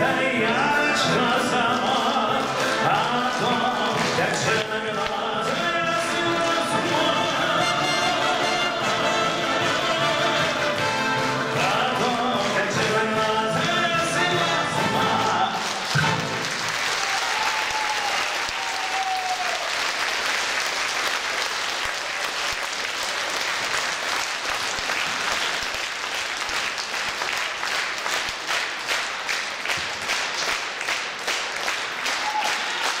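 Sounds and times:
audience applauding: 1.5 - 33.0.

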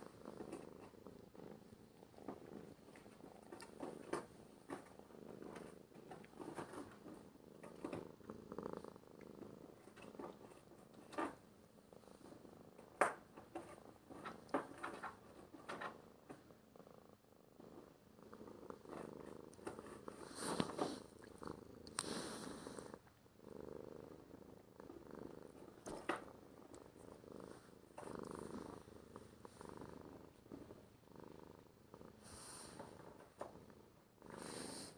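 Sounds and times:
cat purring: 0.0 - 34.9.

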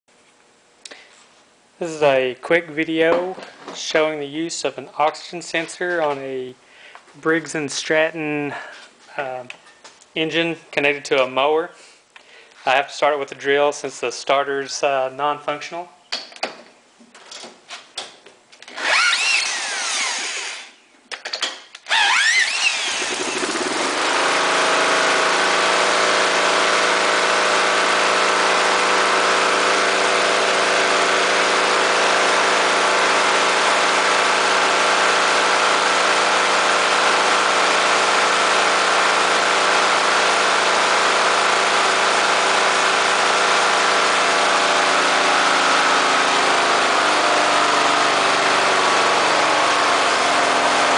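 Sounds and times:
power drill whining: 18.6 - 20.8, 21.9 - 50.9
mower engine running: 22.0 - 50.9.

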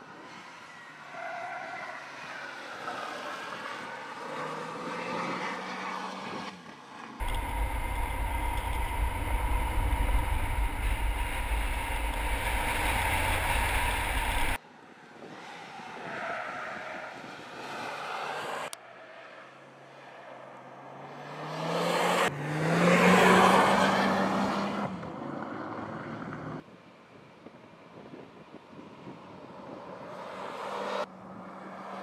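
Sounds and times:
car engine accelerating: 7.2 - 14.6
road rumble: 7.2 - 14.6
wind buffeting microphone: 7.2 - 14.6.

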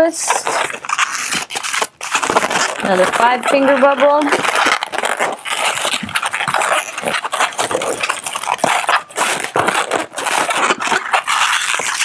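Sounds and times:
balloon squeaking while twisted: 0.0 - 12.0.

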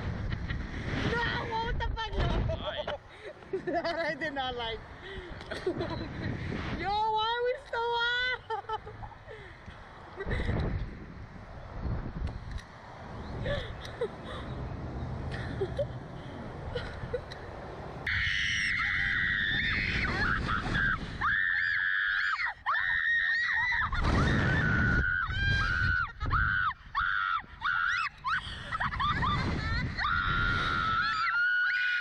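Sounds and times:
girls screaming: 18.1 - 32.0.

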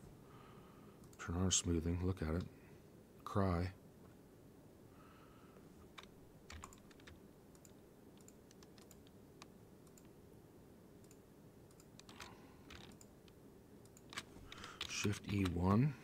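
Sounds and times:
low room hum: 0.0 - 16.0
keyboard keystrokes and clicks: 5.9 - 10.2, 11.0 - 15.7.

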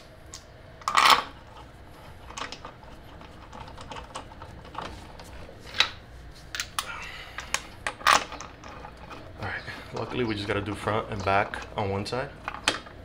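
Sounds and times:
metal bolts clinking: 6.6 - 13.0.

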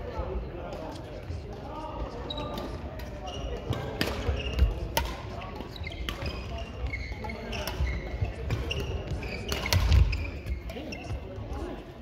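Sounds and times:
rackets smacking shuttlecock: 2.5 - 11.2
shoes squeaking on wooden floor: 5.6 - 11.3.

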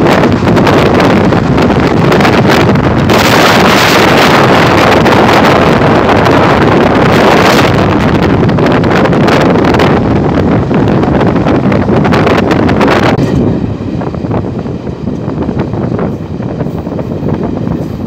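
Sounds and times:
fast-moving train running: 0.0 - 18.0
wind rushing over microphone: 0.0 - 18.0.

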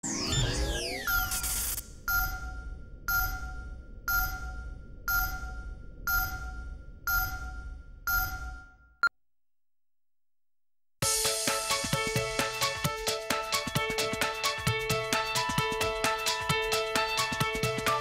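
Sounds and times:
countdown beeps: 2.0 - 9.1.

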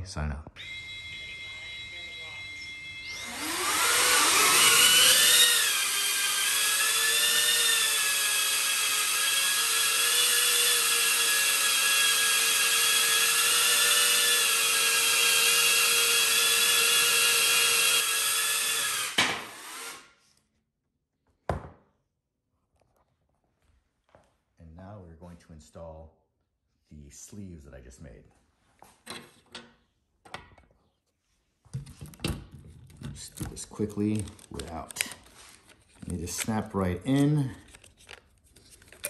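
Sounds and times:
drone motors whining: 0.6 - 15.8.

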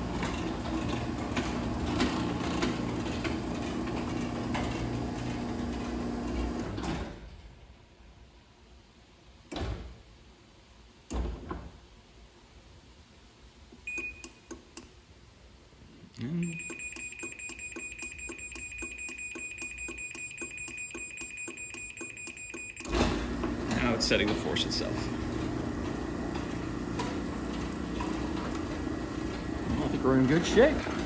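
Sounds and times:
garage door opener motor humming: 0.0 - 7.1, 16.5 - 31.0
brief beep: 13.9 - 14.4, 16.4 - 22.9.

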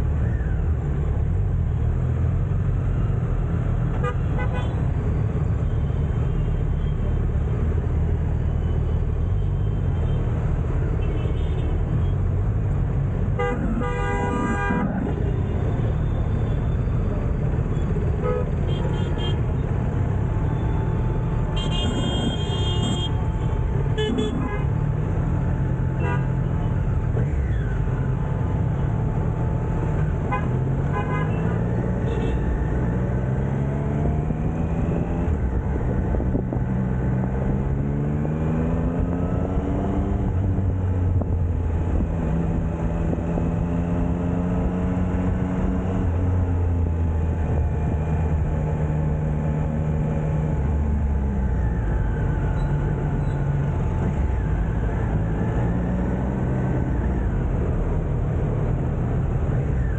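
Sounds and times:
city traffic: 0.0 - 59.9
car horns honking: 13.4 - 14.8.

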